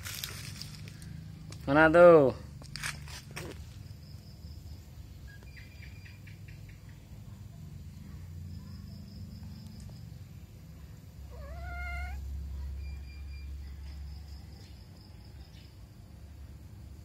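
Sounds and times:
kitten mewing: 11.3 - 12.3.

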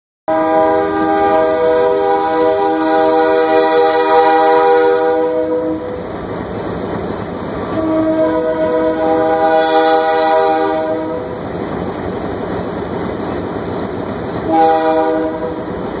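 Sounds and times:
locomotive air horn: 0.3 - 6.0, 7.7 - 11.4, 14.5 - 15.7
train rumbling: 0.3 - 16.0.

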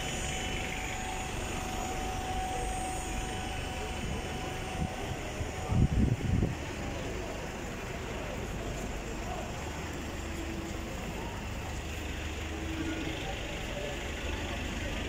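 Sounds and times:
bus engine droning: 0.0 - 15.0
street traffic: 0.0 - 15.0.

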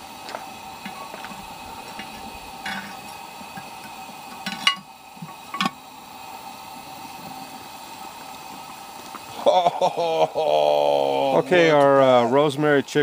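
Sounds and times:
metal lid clinks: 2.0 - 3.0, 4.4 - 4.9.

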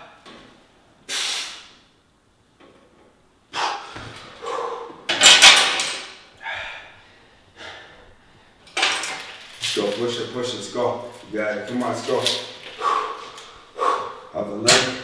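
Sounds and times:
person grunting and breathing hard: 3.5 - 5.1.

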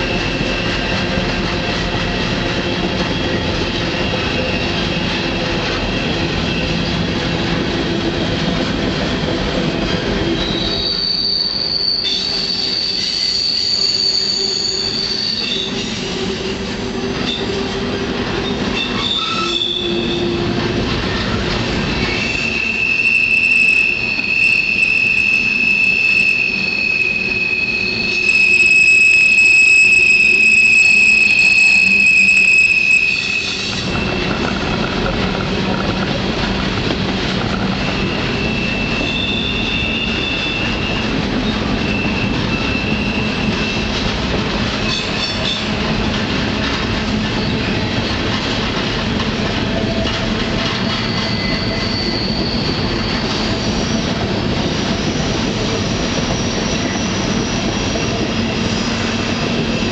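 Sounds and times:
freight train rolling: 0.0 - 59.9
low wheel squeal: 10.2 - 17.8, 18.4 - 20.6, 21.9 - 44.1, 47.1 - 48.6, 49.7 - 59.9
high-pitched wheel squeal: 10.3 - 17.8, 18.4 - 20.5, 21.9 - 44.1, 50.8 - 59.9.

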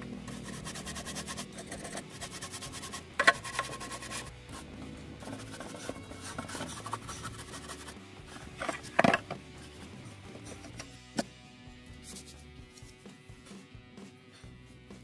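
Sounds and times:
brush scrubbing plastic: 0.2 - 9.8.

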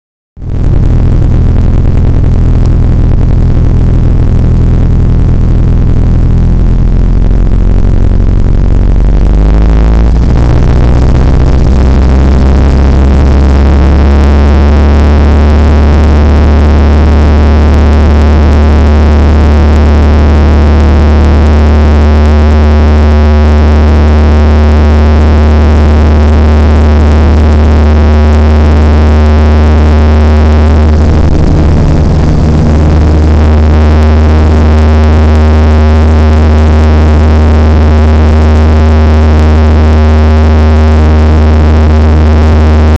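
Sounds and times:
airplane engine and propeller drone: 30.9 - 33.4.

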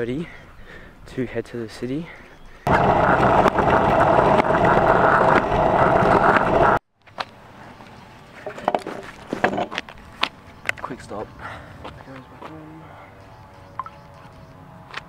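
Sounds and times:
scooter wheels rolling on asphalt: 2.7 - 11.2.

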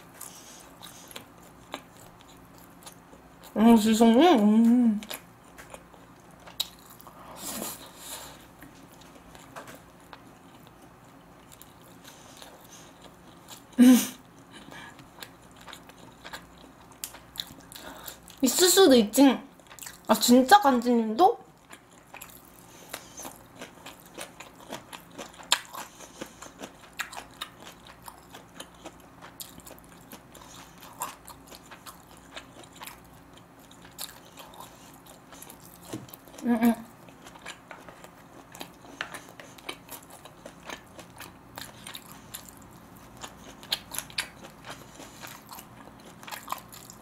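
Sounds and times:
chewing with mouth clicks: 0.0 - 3.6, 5.0 - 18.4, 19.6 - 20.1, 21.5 - 47.0
person humming: 4.5 - 5.1, 36.4 - 36.9.

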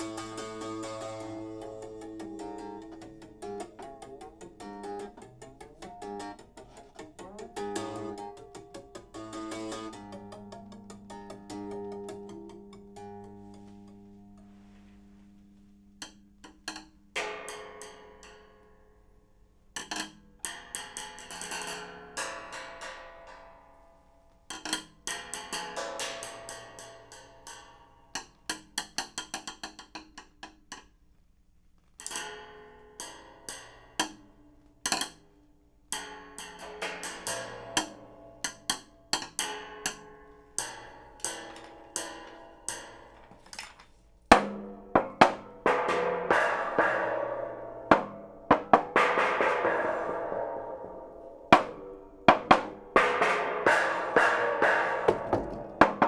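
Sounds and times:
percussion struck with sticks: 0.0 - 14.1, 35.9 - 43.7, 44.3 - 56.0.

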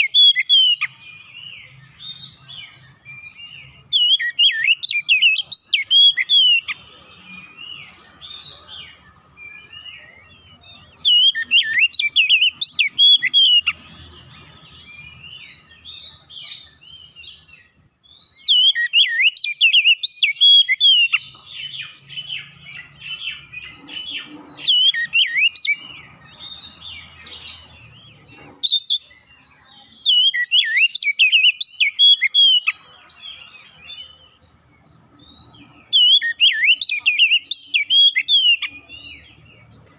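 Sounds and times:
bird singing whistled phrases: 0.0 - 13.8, 18.1 - 23.5, 24.1 - 25.8, 30.0 - 32.8, 35.0 - 38.8
bird twittering: 0.0 - 29.2, 30.0 - 39.9.

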